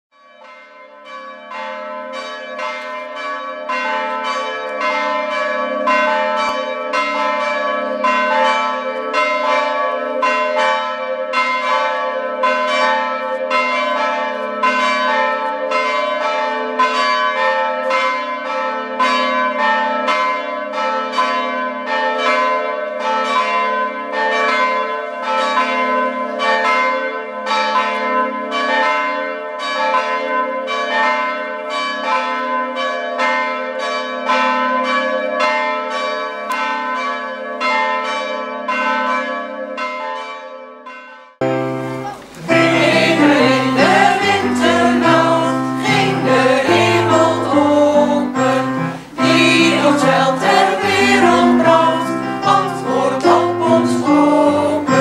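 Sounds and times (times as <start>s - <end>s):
church bells ringing: 0.1s - 55.0s.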